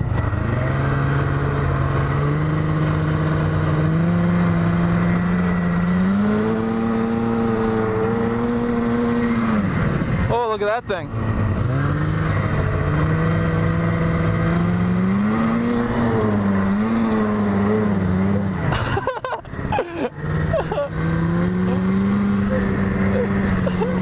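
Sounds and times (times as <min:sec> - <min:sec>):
snowmobile engine under throttle: 0:00.0 - 0:24.0.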